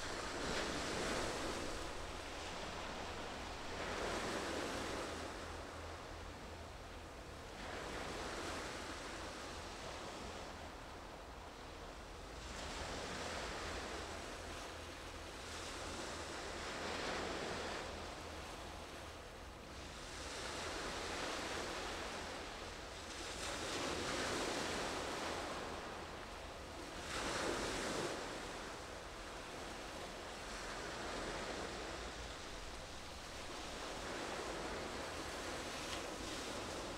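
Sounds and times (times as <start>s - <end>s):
waves washing on shore: 0.0s - 6.4s, 19.7s - 36.9s.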